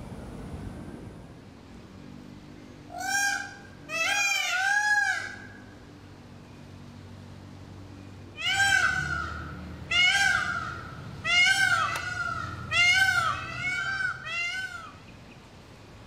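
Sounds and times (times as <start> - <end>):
peafowl calling: 2.9 - 5.7, 8.4 - 15.4.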